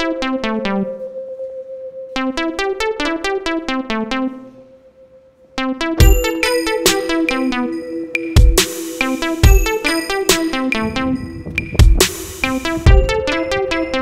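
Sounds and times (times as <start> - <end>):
held synth tone: 0.0 - 14.0
plucked synthesizer notes: 0.0 - 14.0
heavy bass beat: 6.0 - 7.4, 8.2 - 14.0.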